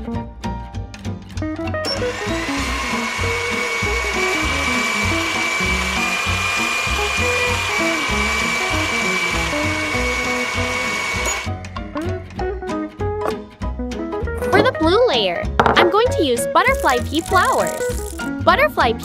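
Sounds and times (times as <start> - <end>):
blender motor whining: 1.8 - 11.6.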